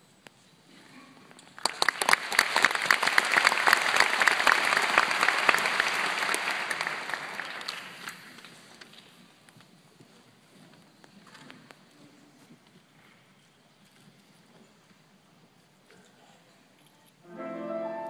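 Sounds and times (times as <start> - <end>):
audience applauding: 1.6 - 8.8.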